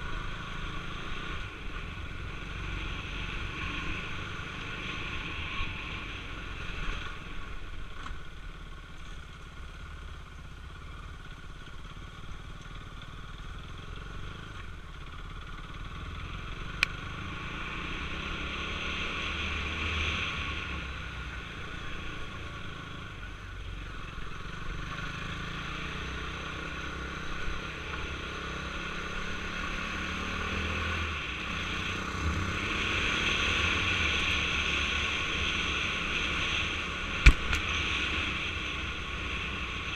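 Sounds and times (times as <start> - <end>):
motorcycle engine running: 0.0 - 17.5, 31.0 - 39.9
sharp click: 37.2 - 37.7.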